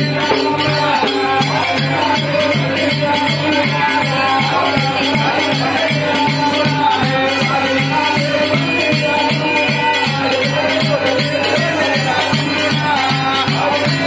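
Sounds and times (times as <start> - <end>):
jingling rattle percussion: 0.0 - 14.0
loud folk music: 0.0 - 14.0.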